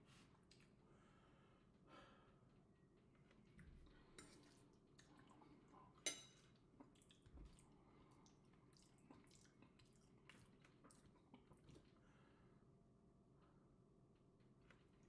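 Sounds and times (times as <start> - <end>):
cutlery clicking on a dish: 6.0 - 6.4.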